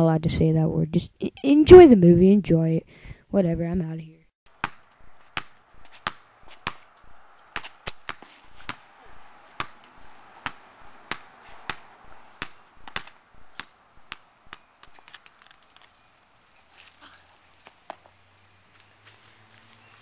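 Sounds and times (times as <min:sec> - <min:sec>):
ball bouncing on asphalt: 0:04.5 - 0:16.1, 0:17.6 - 0:18.9.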